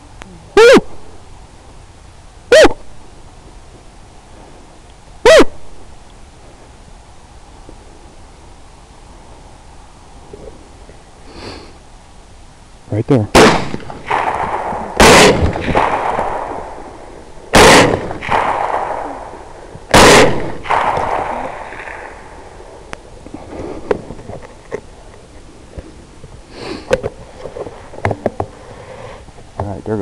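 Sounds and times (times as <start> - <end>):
gunshot echo: 13.3 - 22.8
rifle shots: 13.3 - 22.9.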